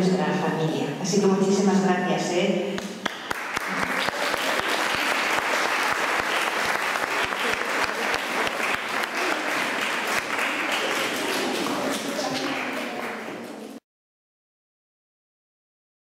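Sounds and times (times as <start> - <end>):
children applauding: 3.0 - 13.8.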